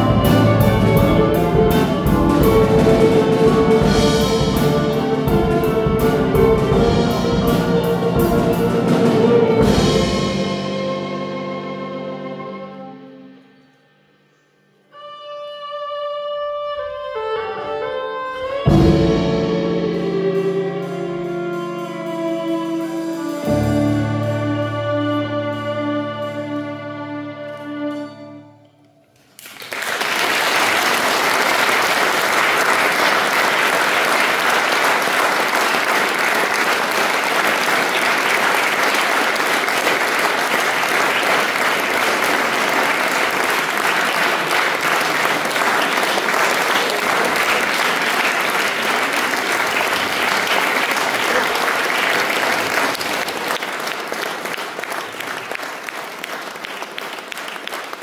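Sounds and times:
audience applauding: 0:29.2 - 0:58.0.

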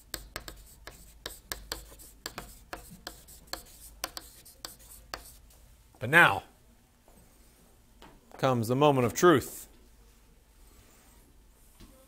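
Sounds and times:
chalk tapping and scratching on chalkboard: 0:00.0 - 0:05.6.

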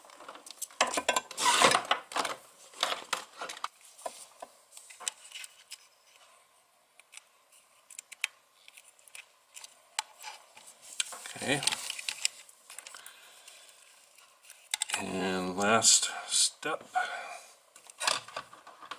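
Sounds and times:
cable and plastic rustling: 0:00.0 - 0:06.3, 0:07.0 - 0:15.8, 0:17.7 - 0:18.9.

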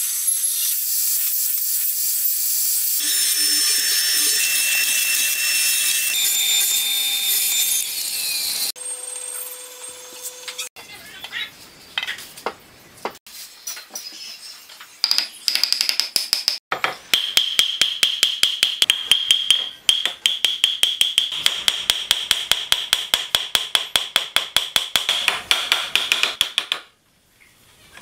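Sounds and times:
hammer striking wooden joint: 0:15.0 - 0:26.9.

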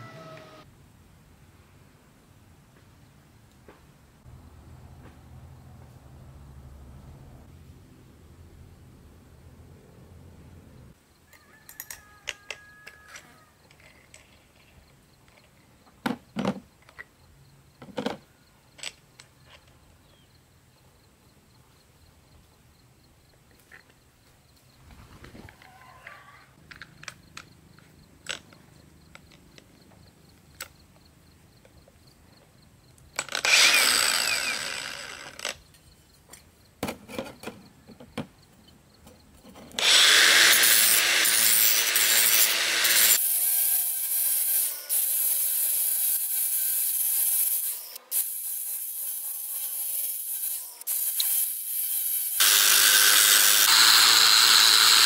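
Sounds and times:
angle grinder running: 0:33.4 - 0:35.4, 0:39.8 - 0:55.0
grinder scraping steel blade: 0:39.5 - 0:55.0.

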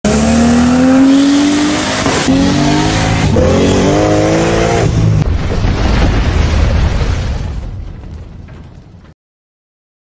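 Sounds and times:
car engines revving: 0:00.0 - 0:05.2.

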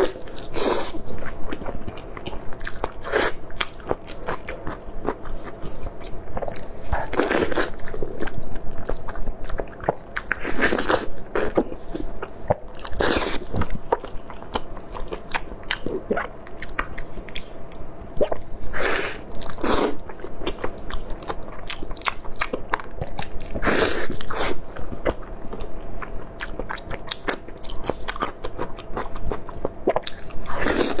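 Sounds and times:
faint steady hum: 0:00.0 - 0:31.0
person chewing: 0:00.0 - 0:31.0.

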